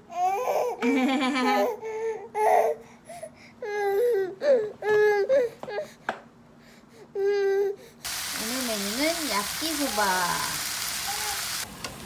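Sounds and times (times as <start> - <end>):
baby whining: 0.0 - 0.8, 1.6 - 6.0, 7.0 - 8.0, 11.0 - 11.6.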